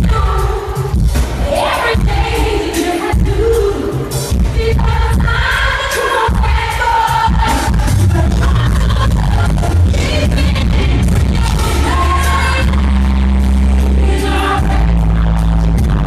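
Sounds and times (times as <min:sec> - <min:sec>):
band with heavy bass: 0:00.0 - 0:16.0
woman singing into a microphone: 0:00.0 - 0:16.0.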